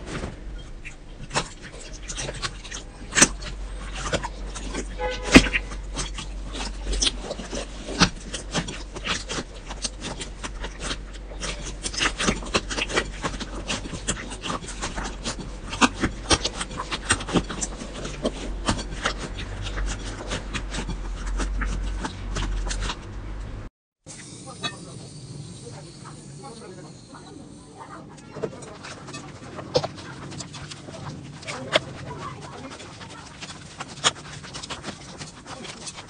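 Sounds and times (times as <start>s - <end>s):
slime squelching in water: 0.0s - 23.2s.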